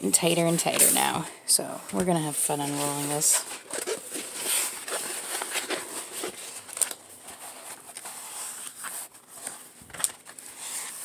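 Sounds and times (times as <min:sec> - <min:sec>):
canvas sheet rustling: 0:02.5 - 0:11.0.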